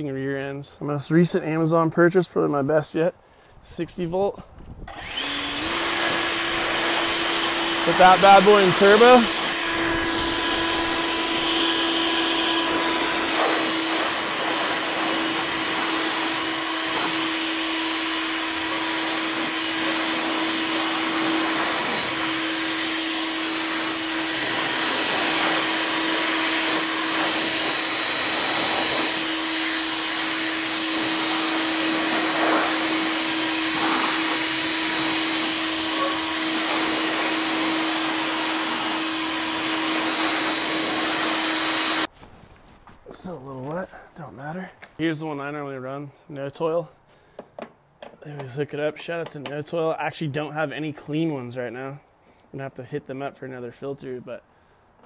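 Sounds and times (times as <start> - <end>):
leaf blower running: 4.9 - 42.2.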